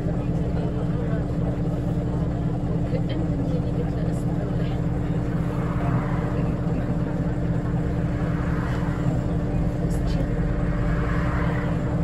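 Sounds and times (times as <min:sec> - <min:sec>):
bus diesel engine running: 0:00.0 - 0:12.0.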